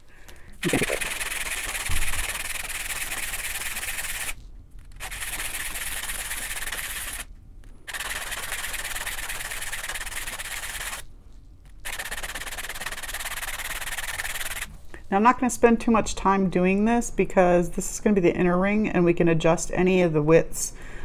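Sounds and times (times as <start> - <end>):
metal ring scraping on sandpaper: 0.6 - 7.3, 7.9 - 11.0, 11.8 - 14.7.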